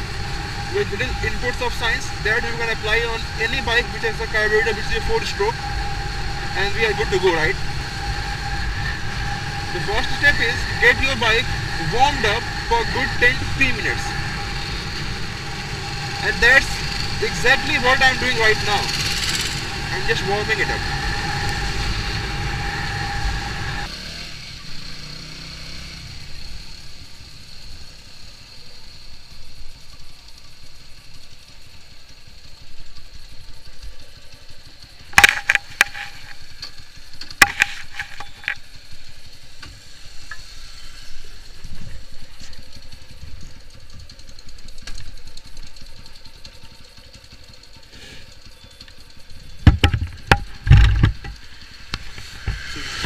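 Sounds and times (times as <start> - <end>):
motorcycle engine idling: 0.0 - 53.0
loud knocks: 49.6 - 51.3.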